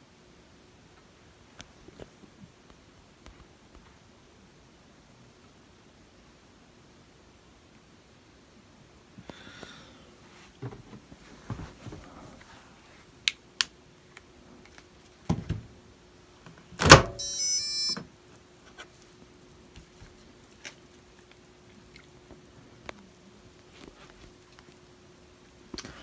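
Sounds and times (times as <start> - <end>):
faint steady hum: 0.0 - 26.0
washer door lock thunk: 16.8 - 17.2.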